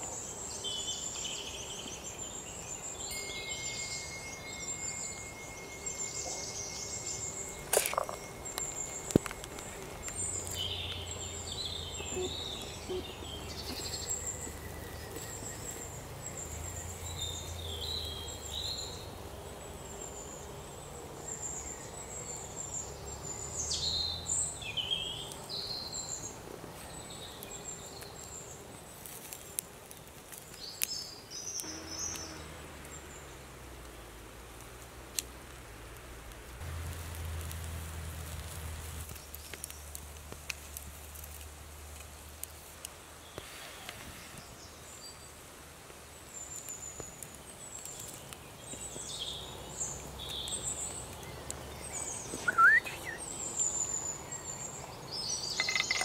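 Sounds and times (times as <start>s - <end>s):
birds chirping and whistling: 0.6s - 19.0s, 48.7s - 56.0s
wood fire popping: 7.5s - 11.2s, 31.6s - 43.0s.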